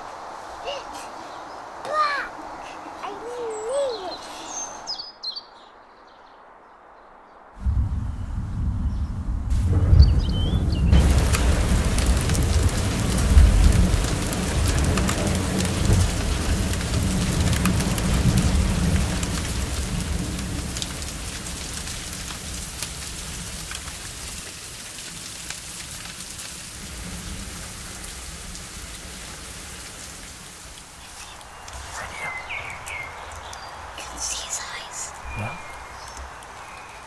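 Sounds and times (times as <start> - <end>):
heavy rain on pavement: 0.0 - 5.0, 7.6 - 37.0
deep rumble: 7.6 - 16.7.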